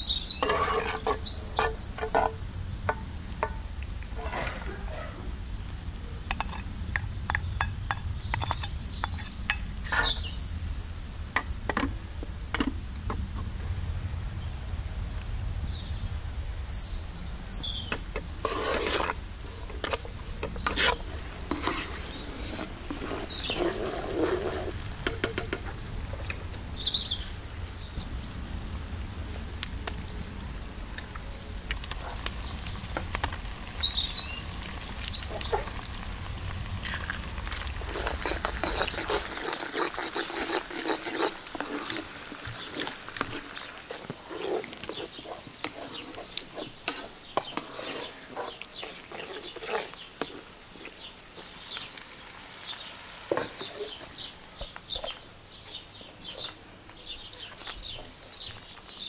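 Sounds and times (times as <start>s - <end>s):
onion sizzling in oil: 0.0s - 4.7s, 5.3s - 54.7s
small birds chirping: 0.0s - 13.2s, 14.1s - 59.0s
wooden spoon scraping a pan: 0.2s - 5.1s, 6.2s - 10.4s, 17.9s - 26.7s, 31.8s - 52.0s, 52.7s - 54.3s
eggs frying in bubbling oil: 5.4s - 54.7s.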